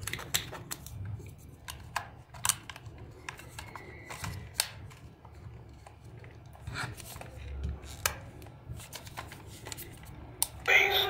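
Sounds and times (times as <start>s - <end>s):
plastic toy car clicks: 1.6s - 5.0s.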